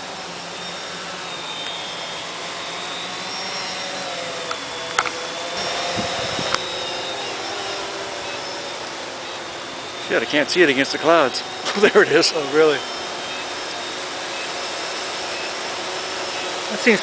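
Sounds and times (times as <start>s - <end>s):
quadcopter motors whining: 0.0s - 17.0s
sharp clicks: 4.4s - 7.0s.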